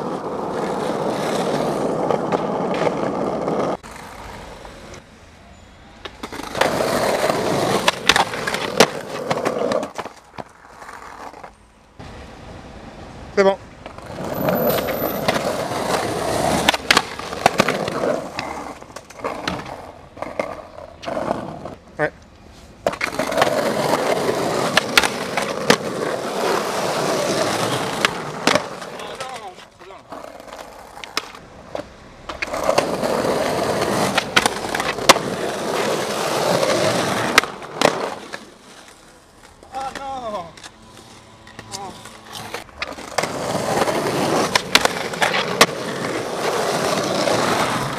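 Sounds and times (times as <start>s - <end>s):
skateboard wheels rolling on concrete: 0.0s - 47.9s
skateboard clacks: 6.0s - 11.5s, 13.8s - 21.7s, 22.8s - 47.9s.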